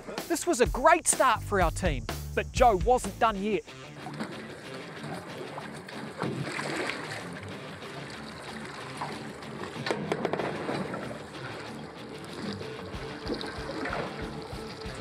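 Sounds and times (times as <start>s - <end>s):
sharp splashes: 3.9s - 15.0s
water lapping against hull: 3.9s - 15.0s.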